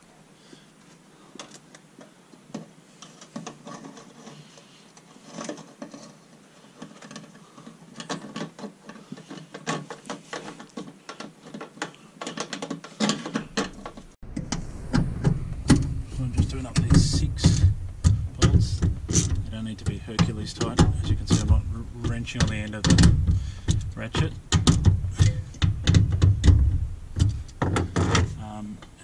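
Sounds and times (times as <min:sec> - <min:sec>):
metal and plastic parts clicking: 0:02.5 - 0:14.5.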